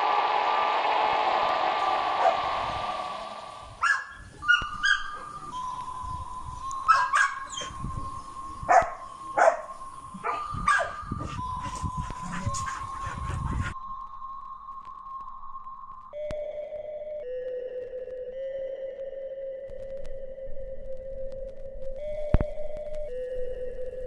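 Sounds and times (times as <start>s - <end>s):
dogs barking and yipping: 3.8s - 5.8s, 6.8s - 8.0s, 8.6s - 13.8s.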